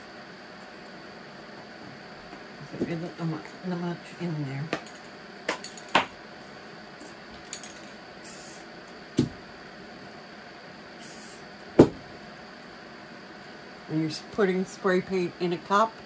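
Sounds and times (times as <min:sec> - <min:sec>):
spray can hissing: 0:08.2 - 0:08.6, 0:11.0 - 0:11.4
handling knocks: 0:11.8 - 0:12.0.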